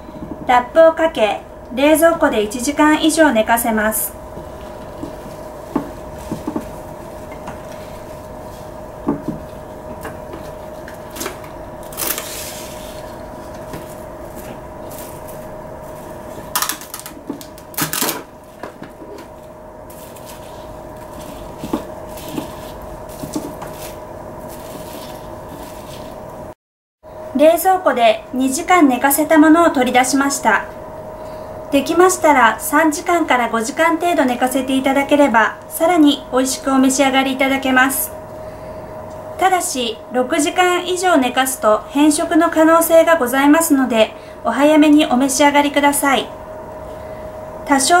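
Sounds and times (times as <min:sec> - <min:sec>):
faint steady hum: 0:00.0 - 0:48.0
paper and cling film rustling: 0:10.4 - 0:26.2
cling film crinkling: 0:11.8 - 0:13.1.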